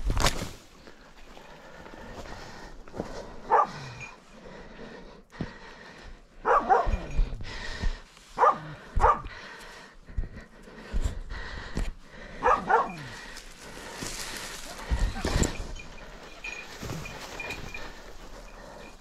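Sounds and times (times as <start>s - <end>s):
dog barking: 3.5s - 4.0s, 6.4s - 7.1s, 8.4s - 9.3s, 12.4s - 13.1s
footsteps through dry leaves: 13.1s - 15.4s.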